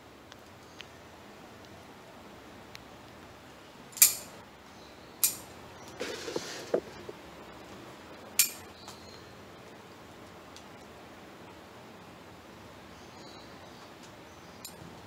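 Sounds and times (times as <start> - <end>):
foliage rustling: 5.9 - 7.4.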